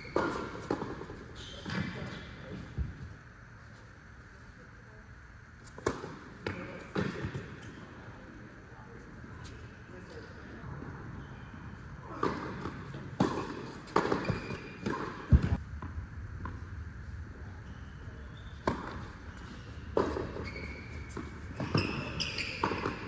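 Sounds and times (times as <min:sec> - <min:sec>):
tennis balls struck and bouncing: 0:00.0 - 0:02.2, 0:05.7 - 0:07.8, 0:12.1 - 0:16.7, 0:18.6 - 0:23.0
short high squeaks: 0:19.2 - 0:22.9.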